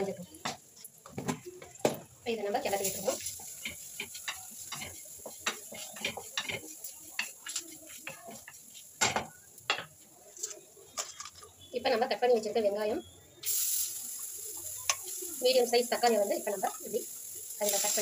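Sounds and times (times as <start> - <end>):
wooden spatula scraping a pan: 2.7 - 9.0.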